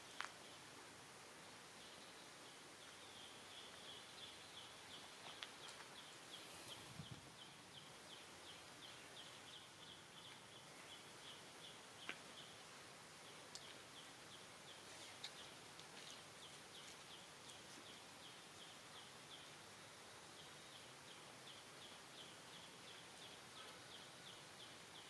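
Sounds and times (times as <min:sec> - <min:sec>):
faint clicks: 0:13.5 - 0:13.8.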